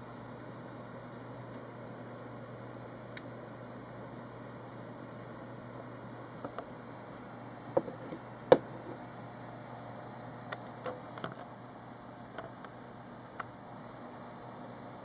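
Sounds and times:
low hiss and hum: 0:00.0 - 0:15.0
speaker frame clicks and knocks: 0:07.8 - 0:08.8.

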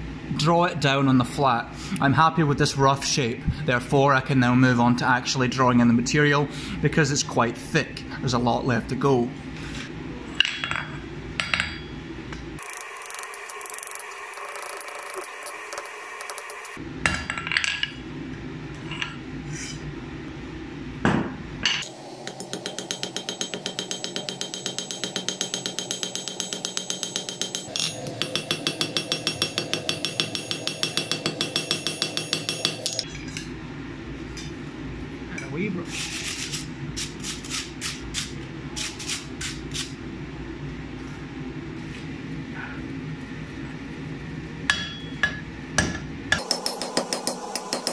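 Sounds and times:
hammer striking steel on anvil: 0:21.8 - 0:33.1, 0:44.7 - 0:47.9.

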